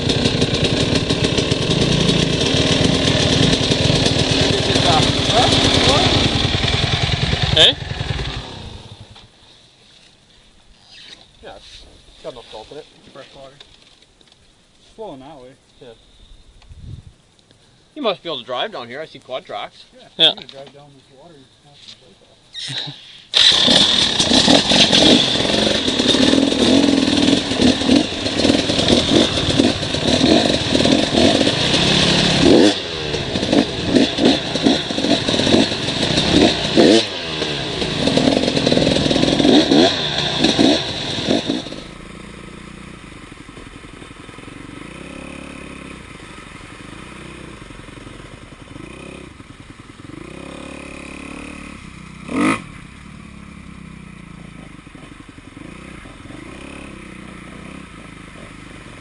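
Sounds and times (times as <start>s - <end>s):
vehicle engine revving: 0.0s - 9.2s, 23.4s - 59.0s.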